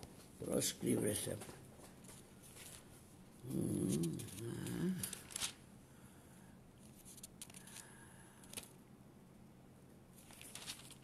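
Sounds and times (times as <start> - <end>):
book pages rustling: 1.3 - 3.0, 3.8 - 5.6, 6.8 - 8.8, 10.2 - 11.0
man murmuring: 3.4 - 5.2.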